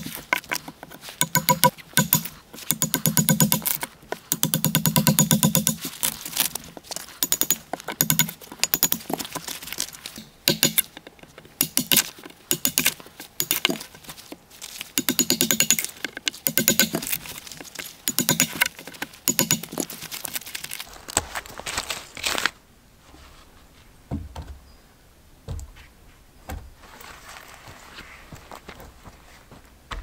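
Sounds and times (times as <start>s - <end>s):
wood cracking under knife: 0.0s - 22.4s
soft footsteps on forest ground: 3.6s - 4.3s, 5.8s - 15.0s, 15.8s - 24.8s, 25.4s - 30.0s.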